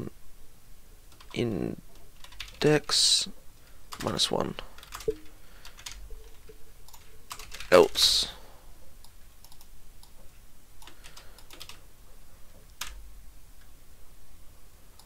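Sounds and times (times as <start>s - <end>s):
computer keyboard typing: 2.2s - 2.7s, 3.9s - 4.2s, 4.8s - 8.1s, 10.8s - 11.8s, 12.8s - 13.0s.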